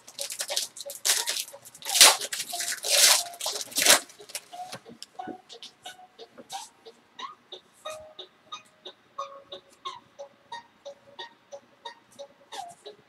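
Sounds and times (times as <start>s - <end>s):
foil wrapper tearing and crinkling: 0.0s - 4.8s.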